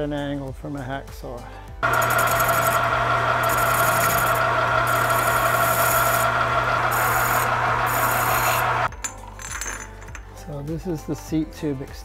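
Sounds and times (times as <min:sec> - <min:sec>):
file scraping metal: 0:01.8 - 0:08.9
metal lathe humming and whining: 0:01.8 - 0:08.9.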